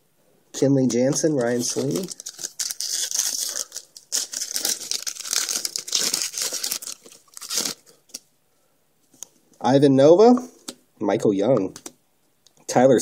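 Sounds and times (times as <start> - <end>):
foil wrapper tearing and crinkling: 1.1 - 8.2.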